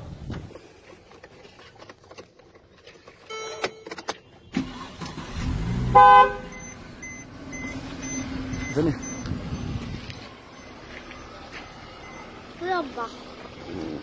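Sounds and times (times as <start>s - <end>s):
car warning chime beeping: 3.3s - 4.1s, 6.0s - 12.9s
car horn blast: 5.8s - 6.6s.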